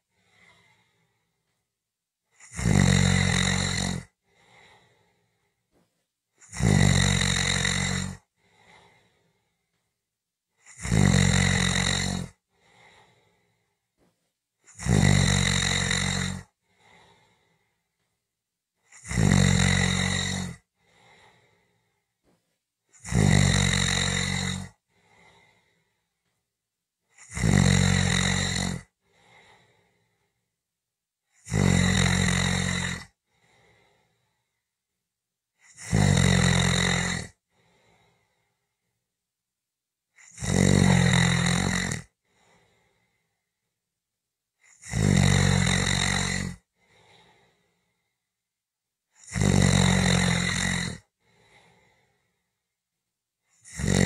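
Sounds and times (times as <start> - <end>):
person snoring: 0.0 - 1.3, 2.3 - 5.6, 6.4 - 9.7, 10.6 - 13.8, 14.6 - 17.8, 18.8 - 22.1, 22.9 - 26.1, 27.1 - 30.4, 31.3 - 34.6, 35.6 - 38.7, 40.2 - 43.3, 44.6 - 48.2, 49.1 - 52.5, 53.5 - 54.0.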